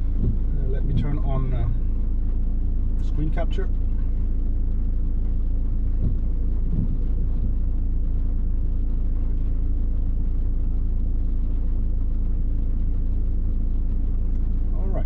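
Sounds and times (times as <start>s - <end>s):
car interior rumble and hum: 0.0s - 15.0s
soft knocks: 0.2s - 1.2s, 6.0s - 7.6s.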